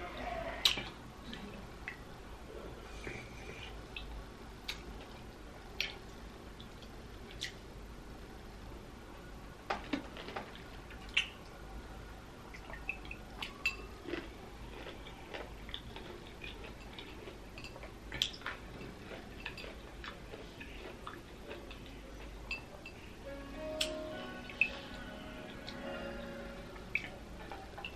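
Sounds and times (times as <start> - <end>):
pickle crunching: 13.4 - 22.6.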